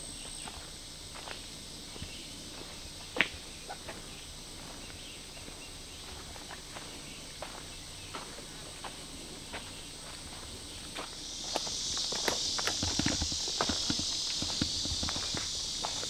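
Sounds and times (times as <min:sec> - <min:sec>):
footsteps on leaf litter: 0:03.9 - 0:16.0.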